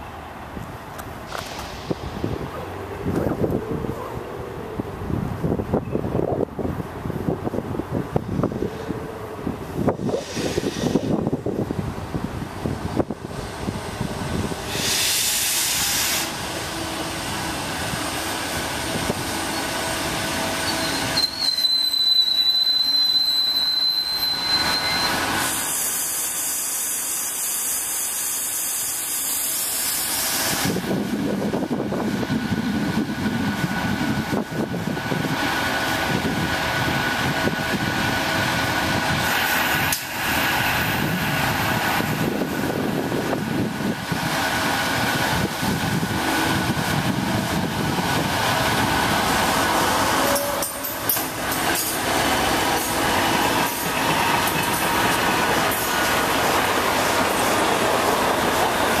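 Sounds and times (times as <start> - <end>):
train wheel and rail noise: 0.0 - 59.0
hiss: 1.3 - 2.4, 9.9 - 11.4, 14.4 - 16.7, 25.2 - 30.9, 39.1 - 42.2
high-pitched squeal: 20.4 - 27.1.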